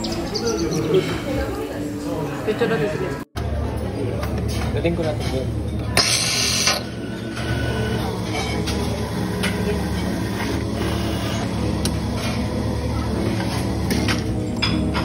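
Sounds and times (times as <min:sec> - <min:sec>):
coffee machine pump hum: 0:06.0 - 0:15.0.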